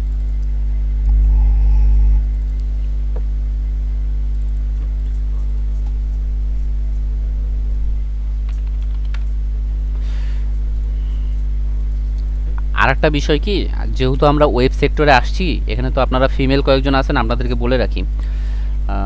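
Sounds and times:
electrical mains hum: 0.0s - 19.0s.

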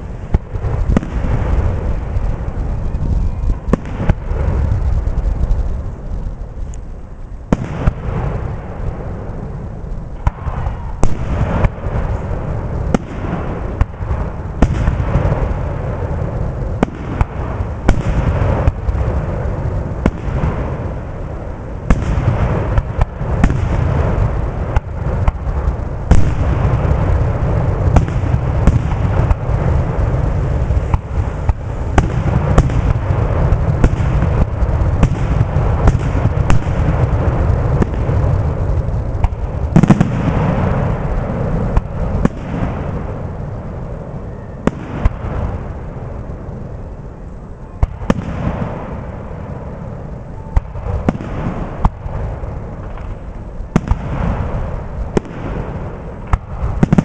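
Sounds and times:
firework shells bursting: 0.0s - 57.0s
low rumble: 0.0s - 57.0s.

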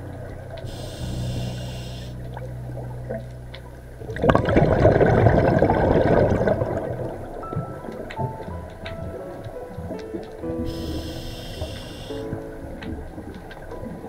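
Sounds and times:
regulator hissing inhale: 0.7s - 2.2s, 10.6s - 12.2s
exhaled bubbles rushing: 3.9s - 14.0s.

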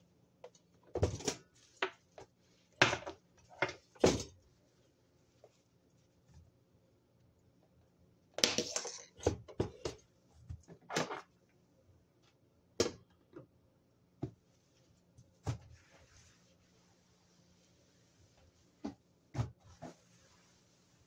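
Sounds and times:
damp cloth wiping countertop: 14.2s - 21.0s.

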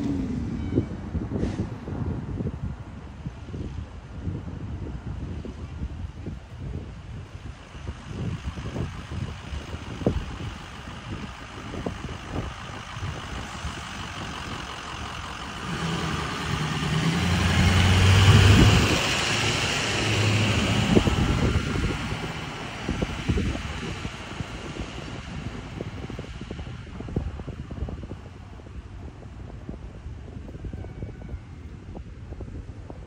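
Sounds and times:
truck engine driving past: 0.0s - 2.4s, 7.8s - 31.8s
wind buffeting microphone: 0.0s - 33.0s.

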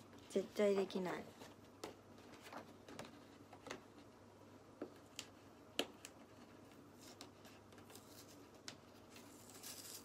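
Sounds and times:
faint sharp clicks and taps: 4.8s - 8.9s.

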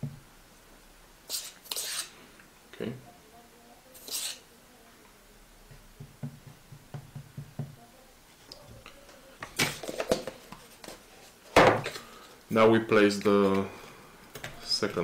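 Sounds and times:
metal brushing sound: 1.3s - 2.1s, 4.0s - 4.4s.

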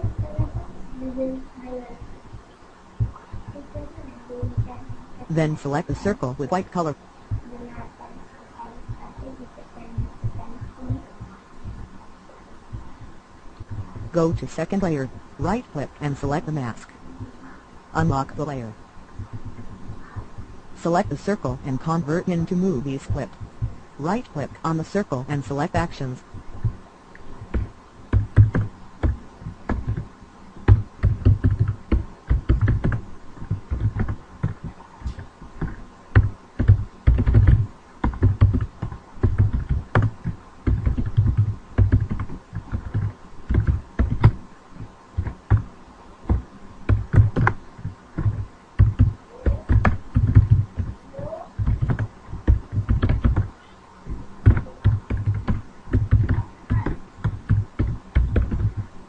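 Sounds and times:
typing on a computer keyboard: 27.5s - 30.1s, 30.7s - 44.4s, 46.3s - 50.9s, 51.6s - 53.5s, 54.1s - 58.8s.

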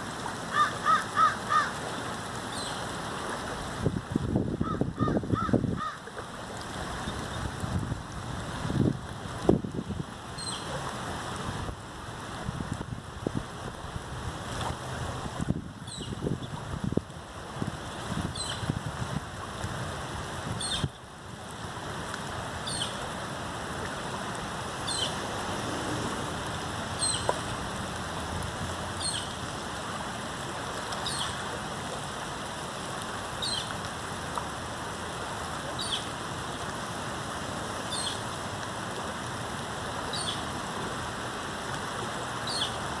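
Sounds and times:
rain falling on river: 0.0s - 43.0s.

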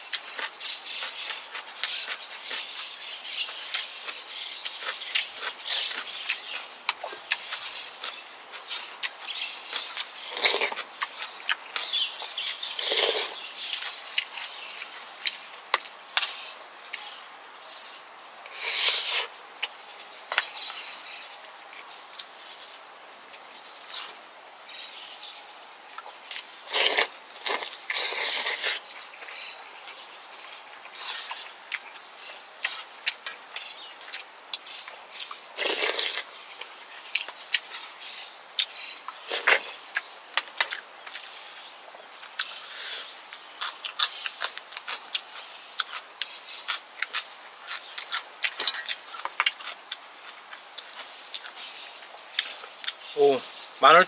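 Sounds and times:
wet chewing and lip smacking: 3.5s - 17.1s, 30.8s - 38.0s, 38.6s - 41.6s, 42.2s - 51.7s, 52.3s - 53.1s.

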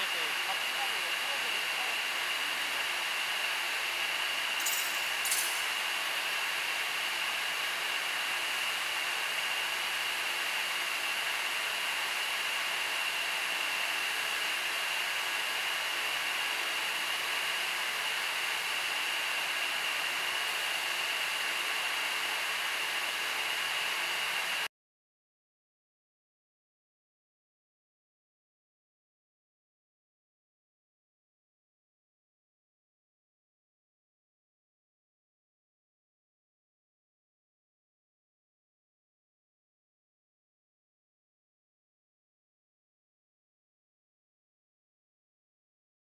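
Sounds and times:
welding machine hiss and whine: 0.0s - 24.7s.

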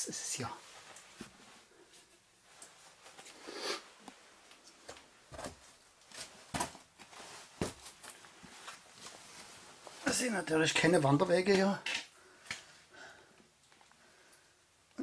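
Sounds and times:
scuffs and rustles on rock: 4.6s - 10.6s.

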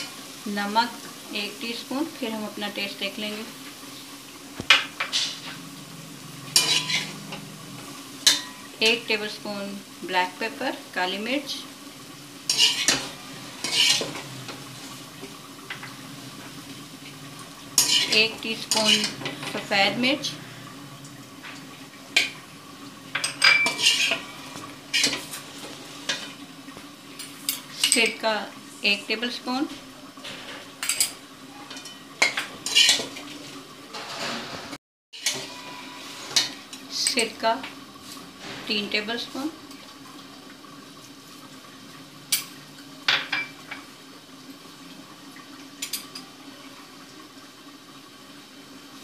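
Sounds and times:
metal spoon scraping a wok: 5.0s - 5.6s, 6.5s - 7.5s, 12.5s - 14.2s, 17.8s - 19.4s, 23.6s - 25.4s, 32.6s - 33.2s, 35.2s - 36.7s.

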